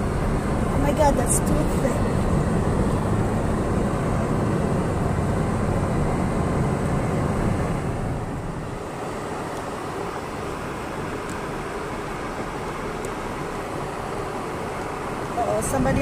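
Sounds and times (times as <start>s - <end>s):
car road and engine noise: 0.0s - 16.0s.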